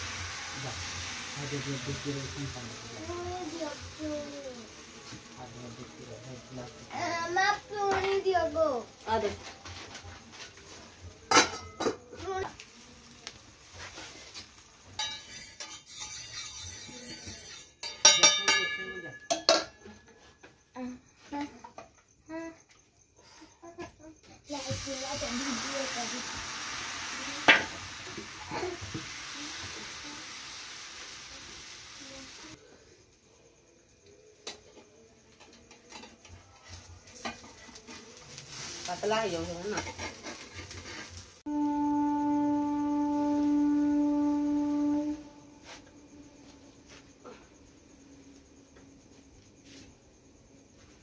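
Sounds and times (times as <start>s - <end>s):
hissing sizzle: 0.0s - 18.0s, 24.4s - 34.6s, 35.2s - 51.0s
metal lid clanking on pan: 11.3s - 12.1s, 15.0s - 16.8s, 17.8s - 19.8s.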